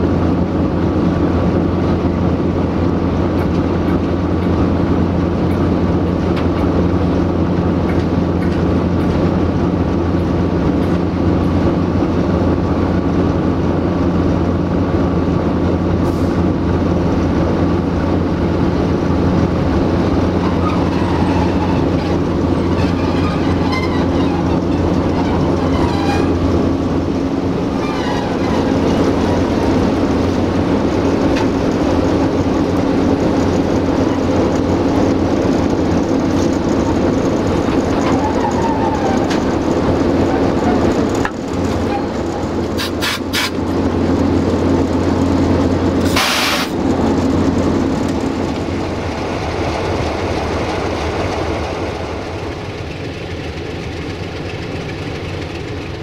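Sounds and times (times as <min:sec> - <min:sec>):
locomotive diesel engines humming: 0:00.0 - 0:56.0
high squeals from running gear: 0:20.4 - 0:26.4, 0:27.8 - 0:29.1.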